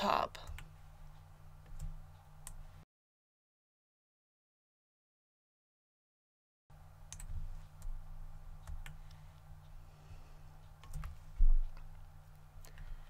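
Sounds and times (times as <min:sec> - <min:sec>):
low steady hum: 0:00.0 - 0:02.8, 0:06.7 - 0:13.0
computer mouse and keyboard clicks: 0:08.6 - 0:09.2, 0:10.8 - 0:12.0.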